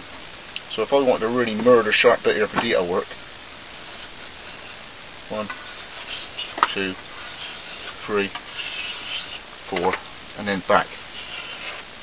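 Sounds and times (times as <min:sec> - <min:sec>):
stone scraping steel blade: 0:04.0 - 0:04.8, 0:05.4 - 0:09.4, 0:10.9 - 0:11.8.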